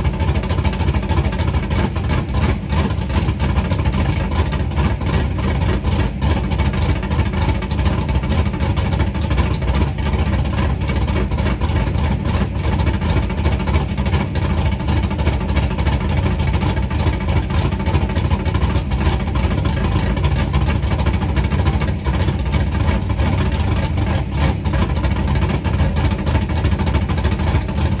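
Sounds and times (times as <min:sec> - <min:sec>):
car engine idling: 0:00.0 - 0:28.0.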